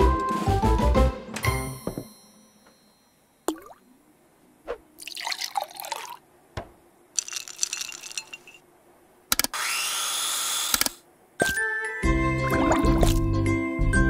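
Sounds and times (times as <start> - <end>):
splashing pour: 5.0 - 6.2
glassy clinking and crackling: 7.2 - 8.6.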